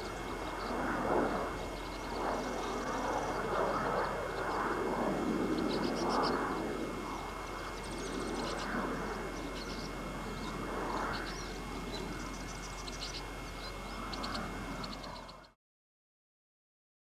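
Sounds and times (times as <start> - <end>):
distant engine noise: 0.0 - 15.6
faint high bird chirps: 9.3 - 15.6.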